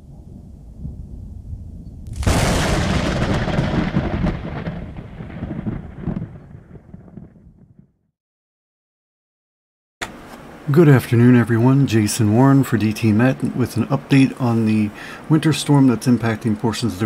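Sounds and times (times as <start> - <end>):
thunder rumbling and clapping: 0.0 - 8.0.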